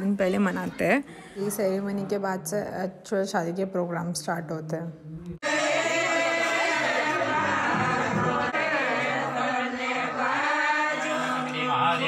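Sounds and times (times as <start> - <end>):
voices singing a chant: 5.4 - 12.0.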